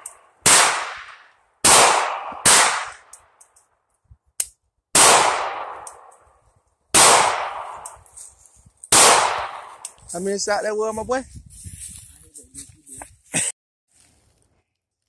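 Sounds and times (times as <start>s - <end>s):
pistol shots with echo: 0.4s - 3.1s, 4.9s - 6.1s, 6.9s - 7.8s, 8.9s - 9.8s.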